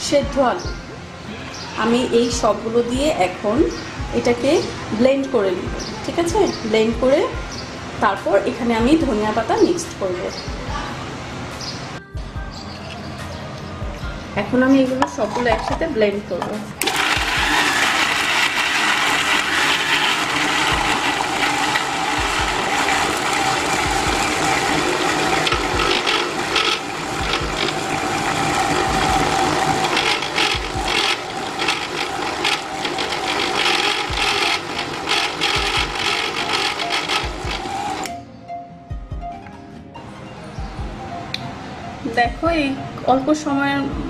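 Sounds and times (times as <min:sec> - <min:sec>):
food rattling in blender jar: 0:16.8 - 0:38.0
blender motor: 0:16.8 - 0:38.1.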